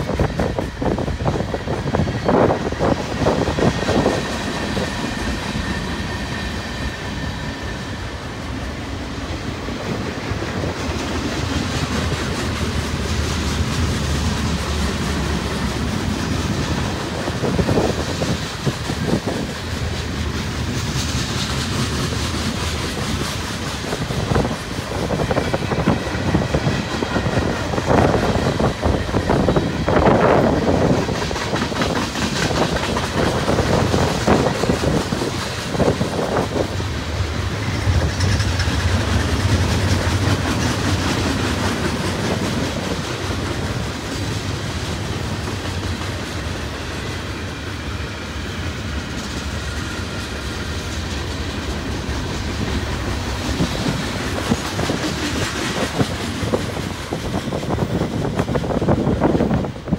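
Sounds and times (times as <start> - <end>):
train wheels rolling rumble: 0.0 - 59.9
wheels clacking on rail joints: 9.7 - 59.9.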